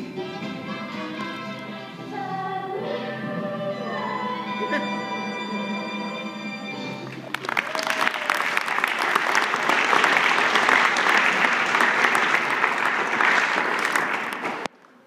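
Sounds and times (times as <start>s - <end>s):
audience applauding: 7.1s - 14.7s.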